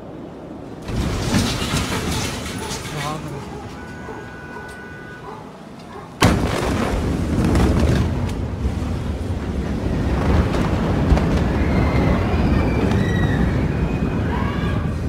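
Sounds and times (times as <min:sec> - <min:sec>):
cracks and clatter: 0:00.8 - 0:04.0, 0:05.8 - 0:08.8, 0:09.5 - 0:11.8
explosion bang: 0:06.2 - 0:08.8.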